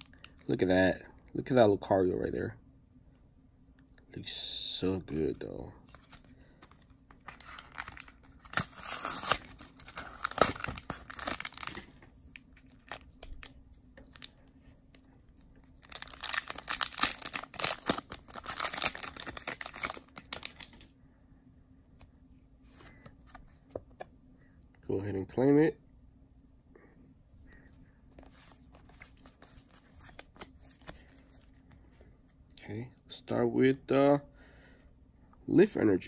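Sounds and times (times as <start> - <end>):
foil wrapper tearing and crinkling: 7.2 - 11.9, 15.8 - 20.8.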